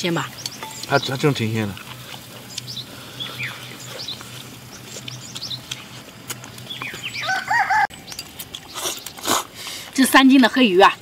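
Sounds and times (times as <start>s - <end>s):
chickens calling: 0.0s - 9.3s
small birds chirping: 0.0s - 11.0s.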